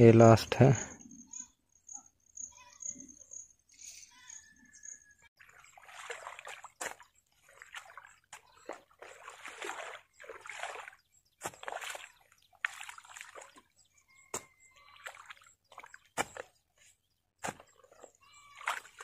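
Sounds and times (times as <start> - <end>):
muddy water splashing: 5.4 - 19.0
hoe chopping and scraping mud: 7.7 - 13.5, 14.2 - 19.0.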